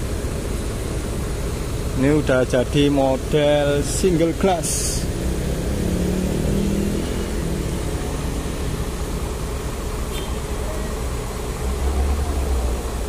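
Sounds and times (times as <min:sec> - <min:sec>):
diesel engine idling: 0:00.0 - 0:13.0
motorcycle passing: 0:04.8 - 0:09.6.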